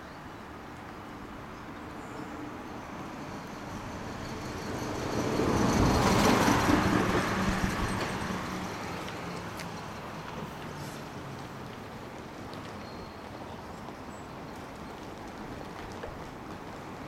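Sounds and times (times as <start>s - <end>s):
road vehicle passing by: 1.8s - 12.8s.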